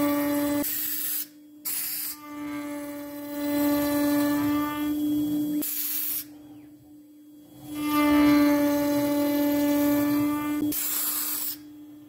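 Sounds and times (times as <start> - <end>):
router motor whining: 0.0 - 0.6, 2.2 - 5.6, 7.5 - 10.7
router bit cutting wood: 7.7 - 10.6.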